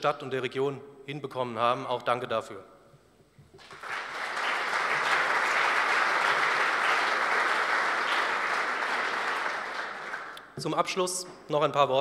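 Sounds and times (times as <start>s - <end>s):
audience applauding: 3.6s - 10.5s.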